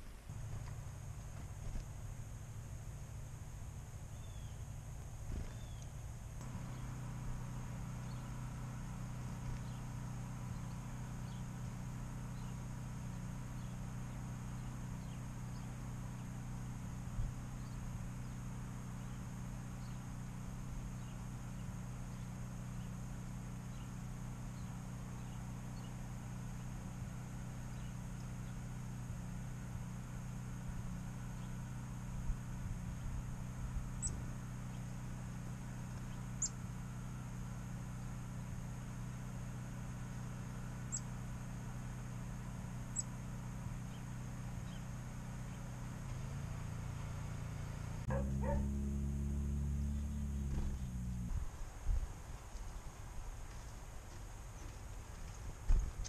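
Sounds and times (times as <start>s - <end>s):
low mechanical hum: 0.0s - 56.0s
bird chirps: 4.1s - 4.6s, 5.4s - 6.0s, 33.9s - 34.9s, 36.0s - 36.6s, 40.9s - 41.1s, 42.9s - 43.2s, 43.8s - 45.7s.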